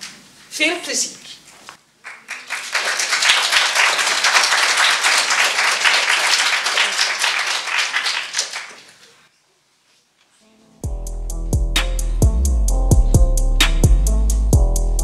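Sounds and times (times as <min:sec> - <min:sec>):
audience applauding: 0:02.0 - 0:09.2.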